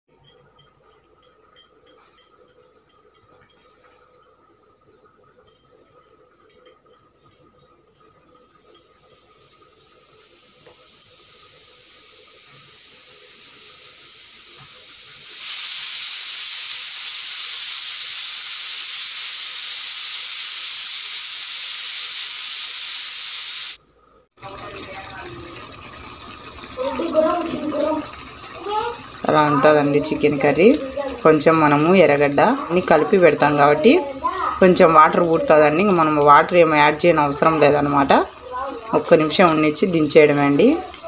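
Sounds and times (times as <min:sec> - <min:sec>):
pressure cooker hissing steam: 0:08.3 - 0:23.8, 0:24.4 - 0:41.0.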